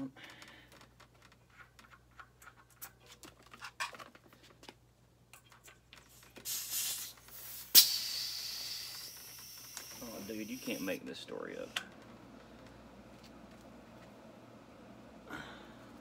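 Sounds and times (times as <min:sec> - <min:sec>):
pump hose popping off: 0:06.4 - 0:10.9
air hissing: 0:06.4 - 0:11.8.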